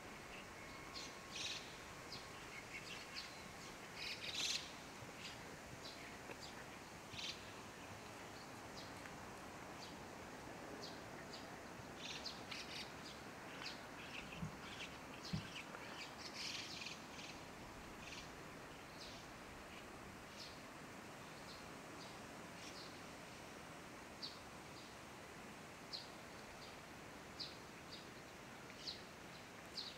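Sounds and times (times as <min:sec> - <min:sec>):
outdoor hiss: 0:00.0 - 0:29.9
small birds chirping: 0:00.3 - 0:09.1, 0:10.8 - 0:20.6.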